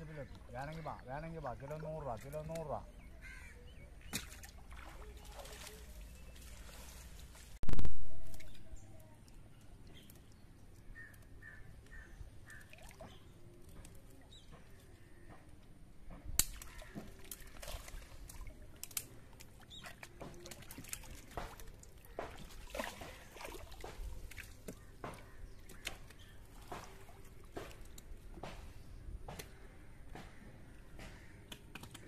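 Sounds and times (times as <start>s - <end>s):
water splashing and dripping: 4.0s - 15.0s, 16.3s - 28.8s.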